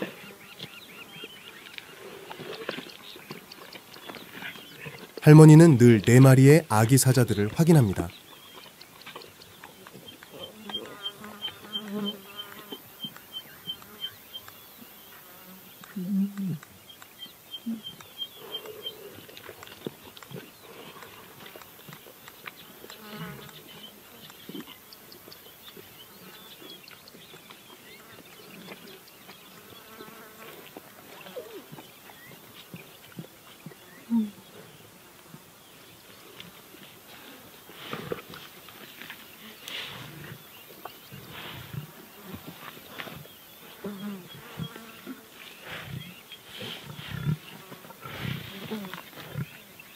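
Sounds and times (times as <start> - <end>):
flying insects buzzing: 10.4 - 19.7, 20.3 - 25.3, 27.9 - 31.8, 37.1 - 49.9
fly buzzing: 10.6 - 12.9, 22.9 - 24.2, 46.6 - 49.4.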